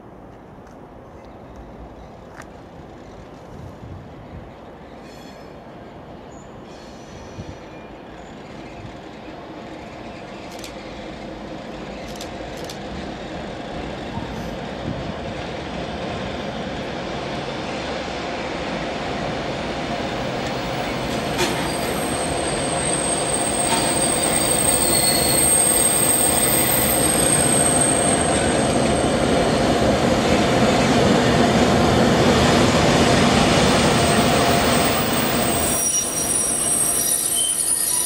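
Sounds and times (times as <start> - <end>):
diesel locomotive engine: 4.1 - 38.0
wheel squeal: 21.4 - 28.8, 35.4 - 38.0.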